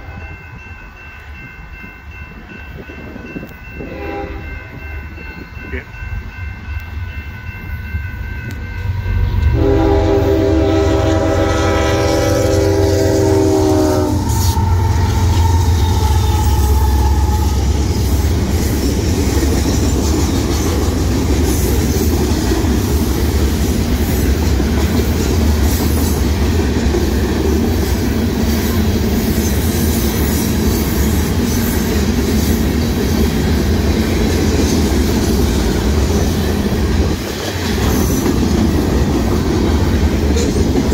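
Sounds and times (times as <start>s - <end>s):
crossing bell ringing: 0.0s - 25.6s
train wheels rumbling on rails: 0.0s - 40.9s
locomotive air horn blast: 3.8s - 4.5s, 9.5s - 17.9s.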